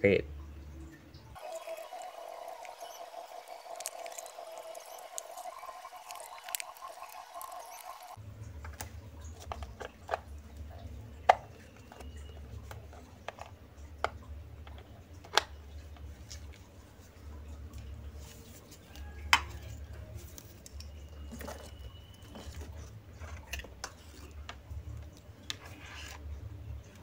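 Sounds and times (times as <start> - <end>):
cables and plugs clicking: 1.6 - 10.3.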